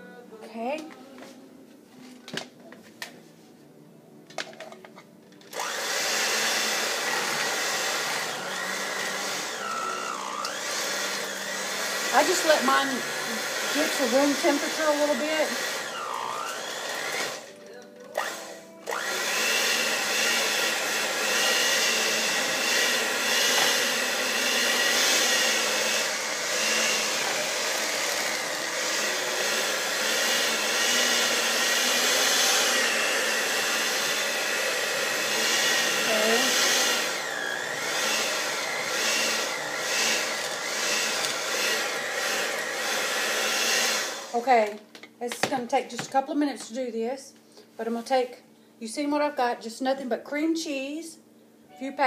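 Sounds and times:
electric mixer whining: 5.5 - 17.5, 18.1 - 44.5.

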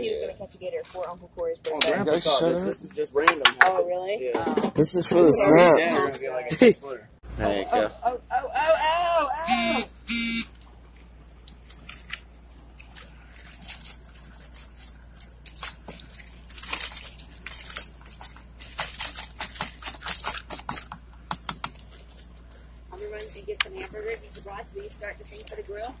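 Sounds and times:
crawfish shells clattering: 11.4 - 22.9.

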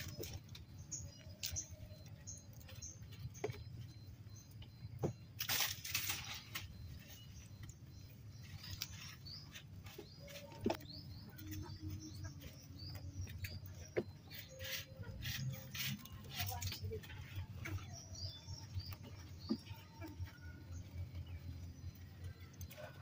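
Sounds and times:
goats chewing crunchily: 0.0 - 23.0
leafy stems rustling: 5.4 - 12.8.

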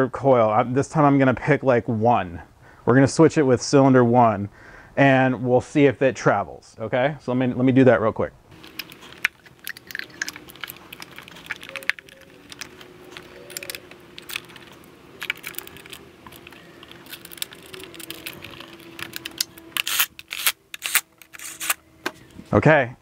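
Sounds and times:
faint steady hum: 0.0 - 23.0
plastic clicks and rattles: 8.6 - 21.8.

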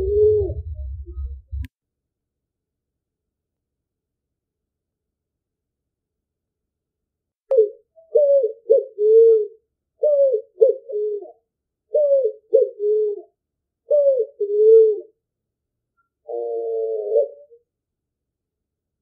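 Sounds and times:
pigeon cooing: 0.0 - 1.6, 7.5 - 15.2, 16.2 - 17.7.

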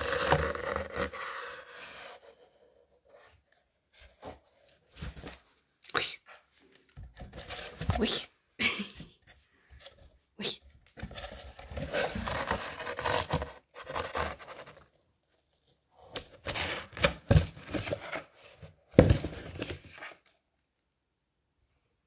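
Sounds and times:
cardboard box scraping and rustling: 0.0 - 3.3, 7.2 - 8.1, 11.0 - 14.8, 16.3 - 20.2.

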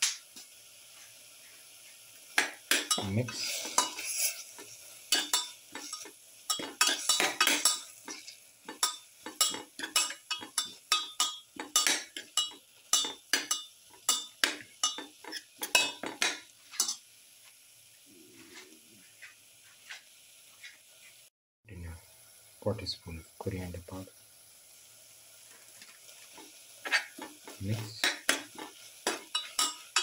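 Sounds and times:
metal spoon scraping a pan: 2.7 - 17.0, 25.6 - 30.0.

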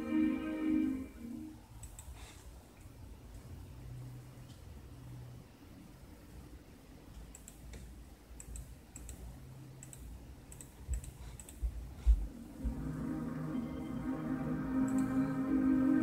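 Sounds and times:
ambient music chord: 0.0 - 1.6, 12.5 - 16.0.

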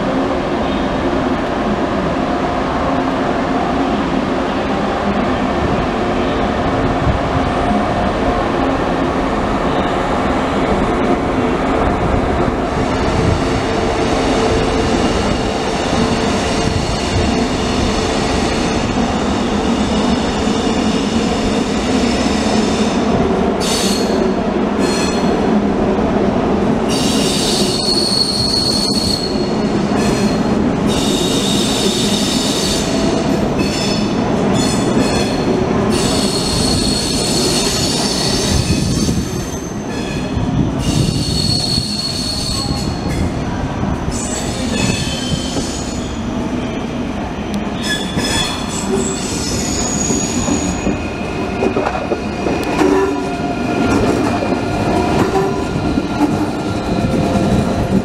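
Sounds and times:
train rolling by: 0.0 - 58.0.

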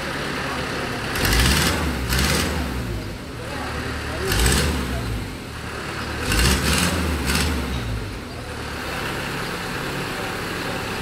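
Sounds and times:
diesel truck engine rumbling: 0.0 - 11.0.

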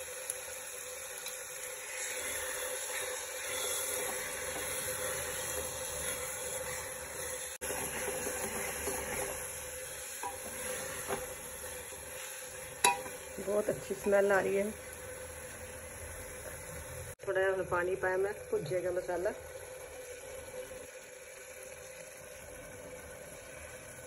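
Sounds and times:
masala sizzling in oil: 0.0 - 24.0
spatula scraping pot: 1.8 - 14.5.

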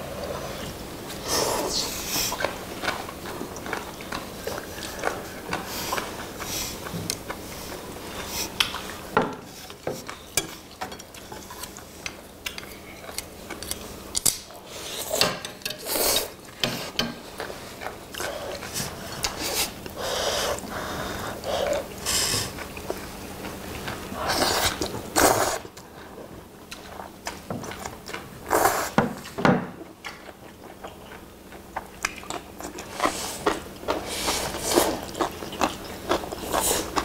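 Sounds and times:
noodles slurped and chewed: 30.2 - 37.0.

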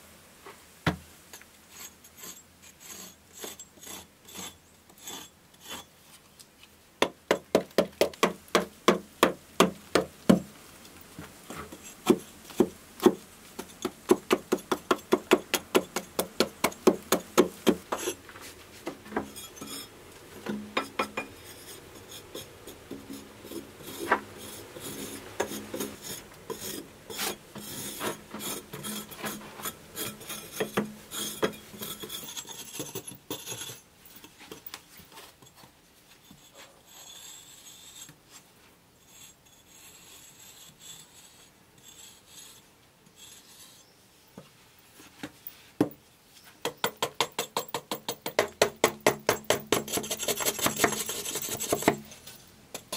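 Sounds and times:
metal scraper rasping over stone: 1.7 - 5.9, 11.5 - 18.2, 19.1 - 34.7, 36.2 - 38.2, 39.0 - 43.9, 46.6 - 52.9
hammer chipping stone: 12.0 - 18.1, 46.6 - 52.0.

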